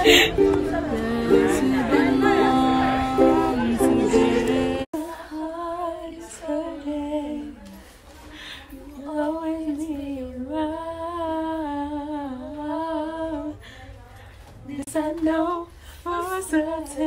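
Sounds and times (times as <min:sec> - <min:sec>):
strummed string instrument: 0:00.0 - 0:04.9
girl singing: 0:00.0 - 0:07.8, 0:14.8 - 0:17.0.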